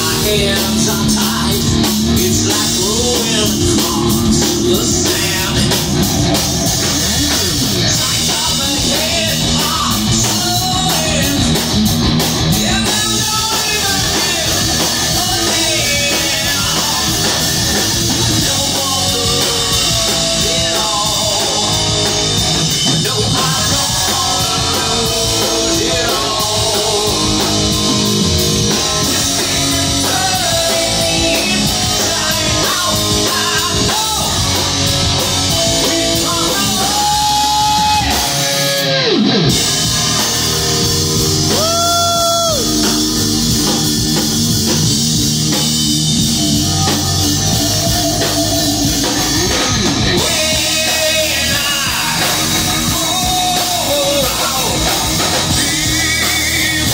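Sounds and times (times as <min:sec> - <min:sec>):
person singing: 0:00.0 - 0:11.7, 0:12.5 - 0:56.9
live rock band: 0:00.0 - 0:56.9.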